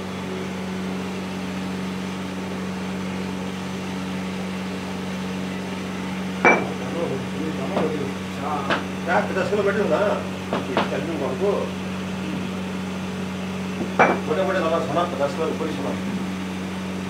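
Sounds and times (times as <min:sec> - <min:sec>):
low machine hum: 0:00.0 - 0:17.0
metallic knock and ring: 0:06.4 - 0:06.8, 0:13.9 - 0:14.3.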